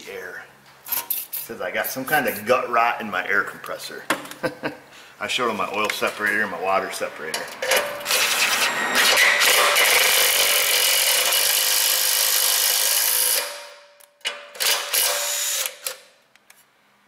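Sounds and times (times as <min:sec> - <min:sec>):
impact driver running: 0:08.0 - 0:13.6, 0:14.6 - 0:15.9.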